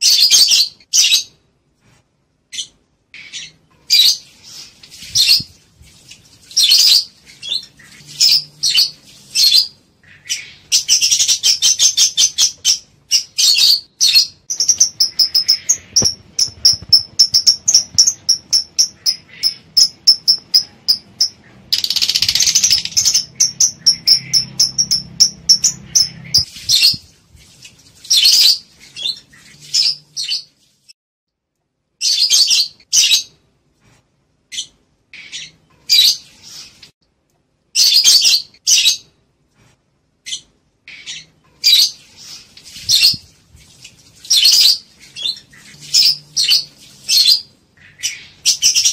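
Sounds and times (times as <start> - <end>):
birds chirping: 2.5 - 27.1, 34.5 - 36.8, 40.2 - 43.3, 44.2 - 48.9
harsh rasping bird calls: 6.6 - 26.9, 44.3 - 48.9.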